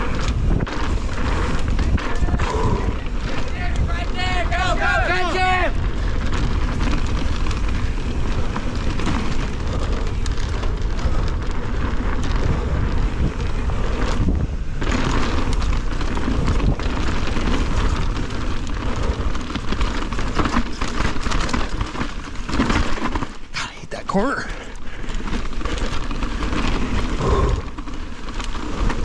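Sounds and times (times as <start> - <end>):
wind rushing over microphone: 0.0 - 22.8, 25.0 - 29.0
bike rattling over rough trail: 0.0 - 29.0.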